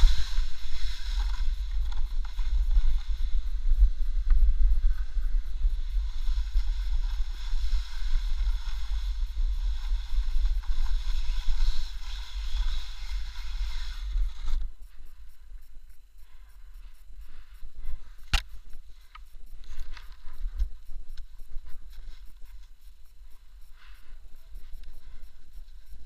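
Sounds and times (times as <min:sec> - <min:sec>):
wind buffeting microphone: 0:00.0 - 0:14.8
hiss of sliding on snow: 0:00.0 - 0:15.1.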